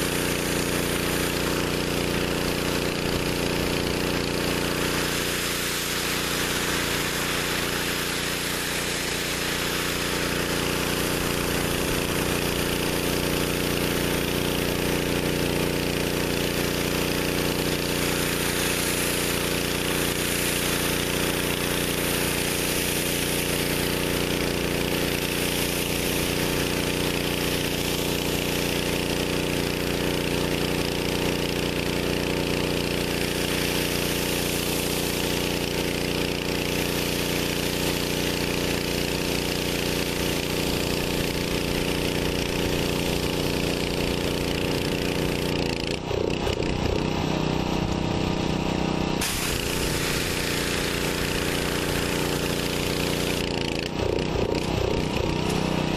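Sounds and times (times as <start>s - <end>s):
pressure washer engine running: 0.0s - 55.9s
water spray hissing on concrete: 0.0s - 55.9s.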